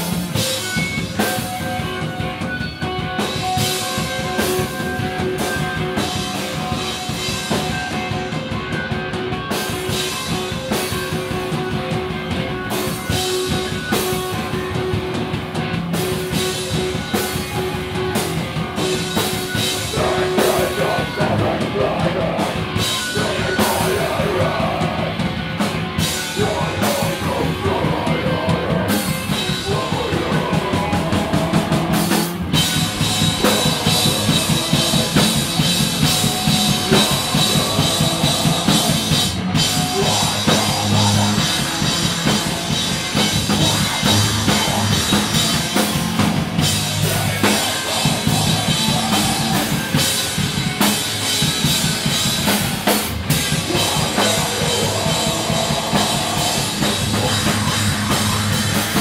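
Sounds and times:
drum kit beating: 0:00.0 - 0:59.0
electric guitar: 0:00.0 - 0:59.0
live rock band playing: 0:00.0 - 0:59.0.

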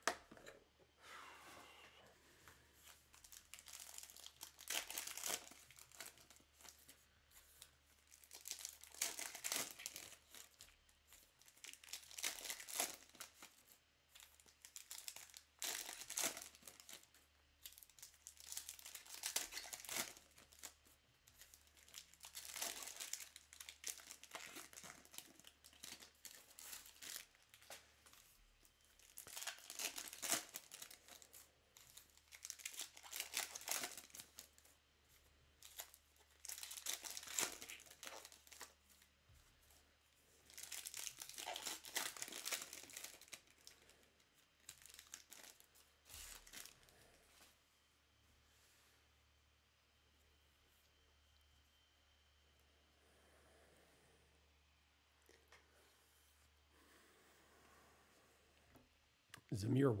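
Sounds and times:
card pack wrappers tearing: 0:03.2 - 0:06.8, 0:08.1 - 0:10.7, 0:11.4 - 0:13.6, 0:14.2 - 0:28.2, 0:29.0 - 0:34.7, 0:35.6 - 0:38.8, 0:40.5 - 0:43.8, 0:44.6 - 0:46.8.

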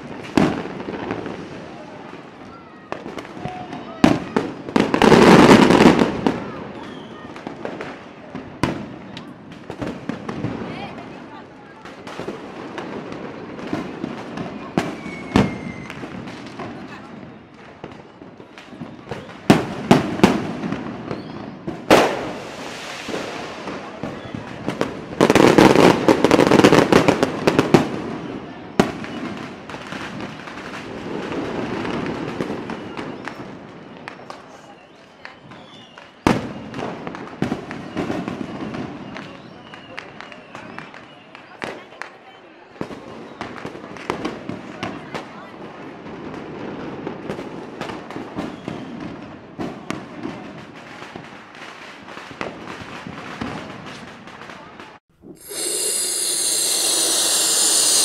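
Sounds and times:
fireworks rumble: 0:00.0 - 0:34.6, 0:49.6 - 0:58.0
fireworks crackling pops: 0:00.0 - 0:42.2, 0:50.4 - 0:58.0
fireworks sharp bang: 0:18.6 - 0:28.2, 0:55.2 - 0:58.0.

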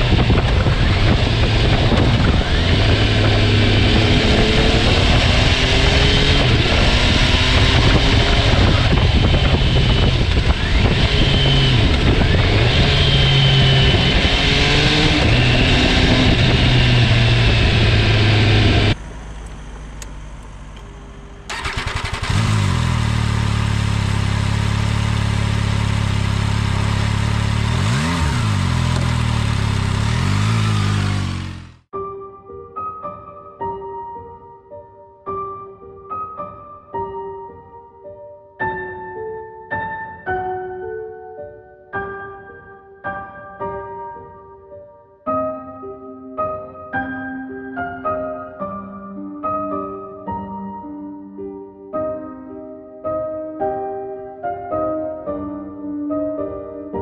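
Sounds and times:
wind noise: 0:00.0 - 0:19.0
motorcycle engine revving: 0:00.0 - 0:31.9.

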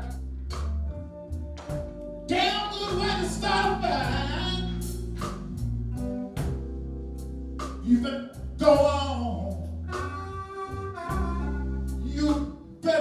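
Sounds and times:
bass line: 0:00.0 - 0:13.0
blues band playing: 0:00.0 - 0:13.0
man singing into a microphone: 0:02.3 - 0:04.8, 0:07.8 - 0:09.6, 0:12.0 - 0:13.0.

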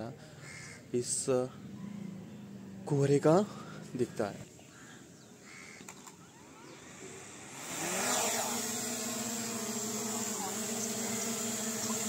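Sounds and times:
drone propeller whine: 0:06.1 - 0:12.0.

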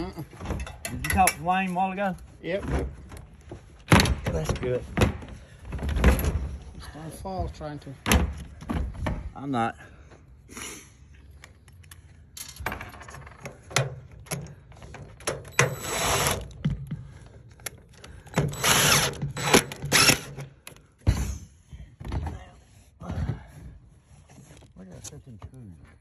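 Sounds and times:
impact driver driving screws: 0:15.5 - 0:16.6, 0:18.3 - 0:20.5.

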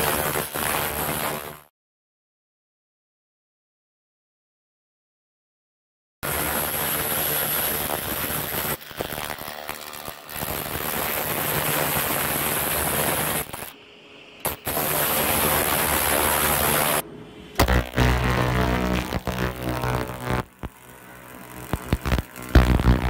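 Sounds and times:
laser cleaner crackling hiss: 0:00.0 - 0:01.6, 0:06.3 - 0:13.8, 0:14.4 - 0:17.0, 0:17.6 - 0:23.0
high whine: 0:09.1 - 0:23.0
low hum: 0:13.7 - 0:23.0.

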